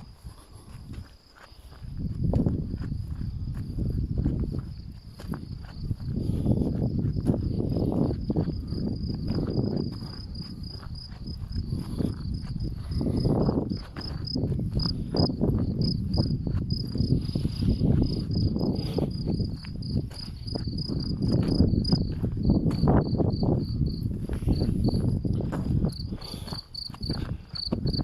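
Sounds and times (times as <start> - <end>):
cricket chirping: 0.0 - 28.0.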